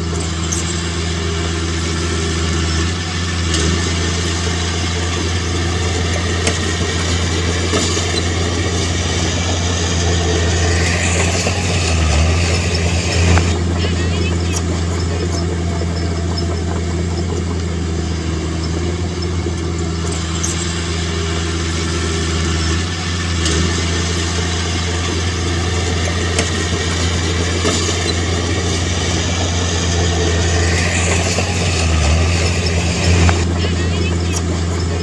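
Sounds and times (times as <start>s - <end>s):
diesel engine running: 0.0s - 35.0s.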